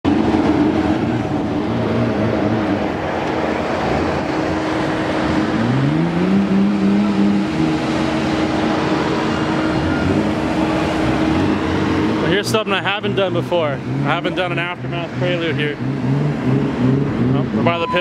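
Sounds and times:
car engines running: 0.0s - 18.0s
skid-steer loader running: 0.1s - 14.8s
engine revving: 0.1s - 18.0s.

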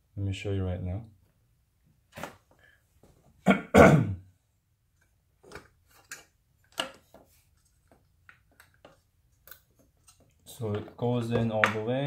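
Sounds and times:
man clearing his throat: 3.4s - 4.3s.

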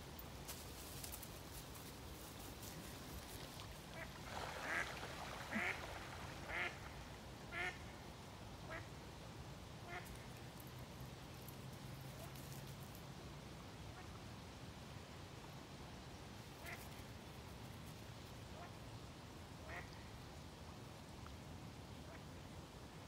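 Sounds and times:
ducks quacking: 4.0s - 5.9s, 6.5s - 6.8s.

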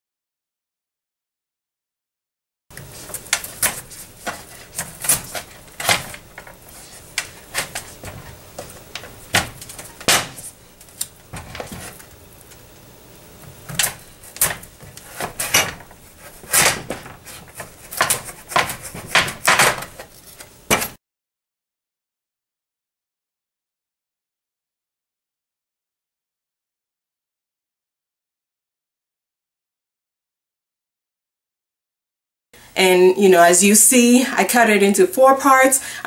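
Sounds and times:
knife chopping on cutting board: 13.8s - 20.0s.

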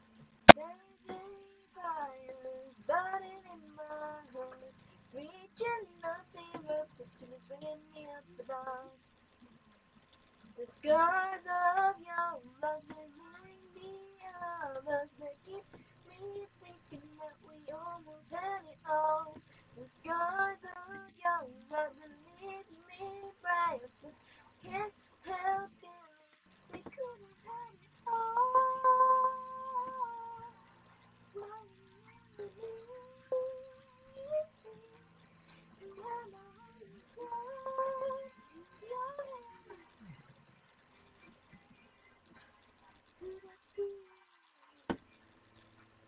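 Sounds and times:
child singing: 0.5s - 9.0s, 10.6s - 26.2s, 26.8s - 30.7s, 31.4s - 35.0s, 35.8s - 39.8s, 43.2s - 44.1s.

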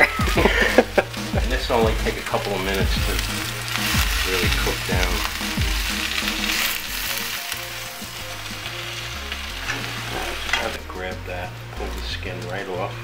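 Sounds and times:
vegetables sizzling in a frying pan: 0.0s - 10.8s
utensil stirring in a pan: 0.5s - 10.8s.

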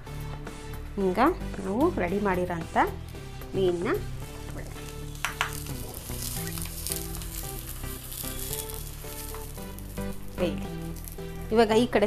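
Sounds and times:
oil sizzling on hot pan: 3.0s - 12.0s.

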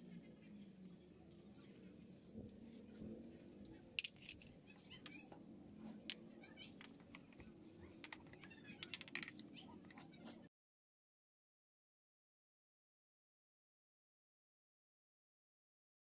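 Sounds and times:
faint low hum: 0.0s - 10.5s.

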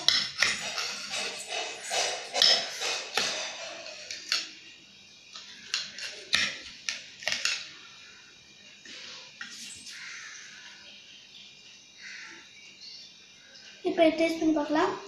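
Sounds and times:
knife scraping on a steel plate: 0.0s - 4.4s.

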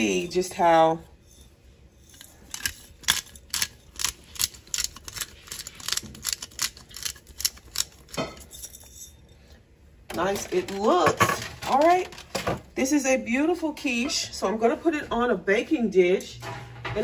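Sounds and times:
pepper mill grinding clicks: 2.5s - 8.3s.

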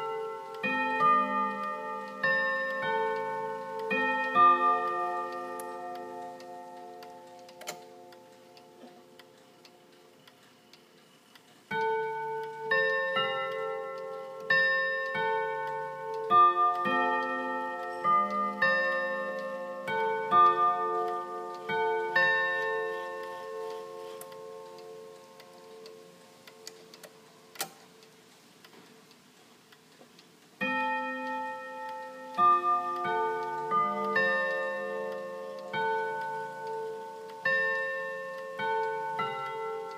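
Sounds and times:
clock chime melody on gong rods: 0.0s - 8.3s, 11.7s - 26.1s, 30.6s - 39.9s.

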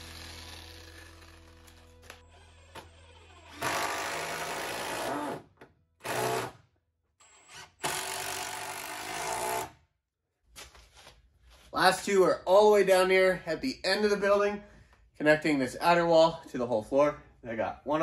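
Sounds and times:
power drill driving screws into wood: 0.0s - 6.6s, 7.2s - 9.8s.

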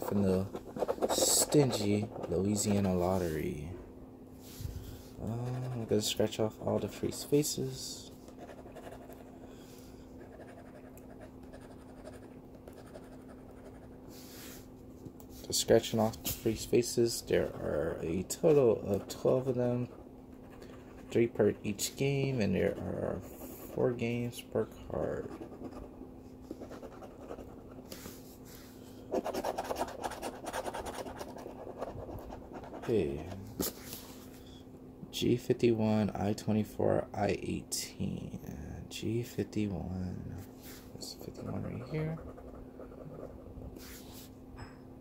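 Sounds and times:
scratching lottery ticket coating: 0.0s - 2.9s, 29.2s - 32.9s
scratching lottery ticket: 0.0s - 3.3s, 5.2s - 6.2s, 25.0s - 28.2s, 29.1s - 33.3s, 41.3s - 43.4s.

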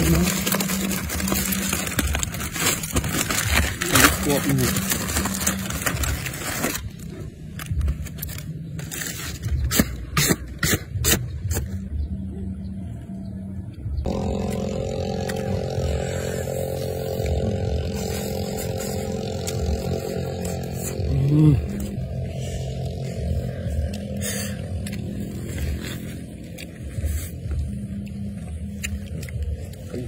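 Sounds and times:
aluminium foil crinkling: 0.0s - 9.6s
steady low hum: 0.0s - 30.0s.

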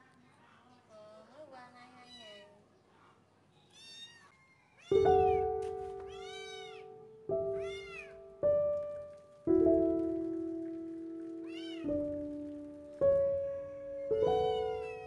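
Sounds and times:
kitten meowing: 3.7s - 8.2s, 11.4s - 12.1s, 13.4s - 15.0s
background music of held notes: 5.0s - 15.0s.

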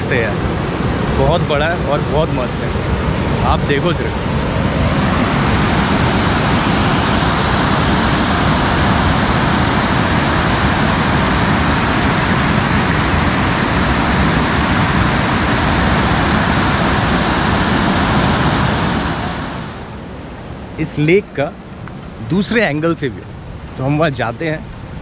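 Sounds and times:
waterfall rushing over rocks: 0.0s - 20.0s.

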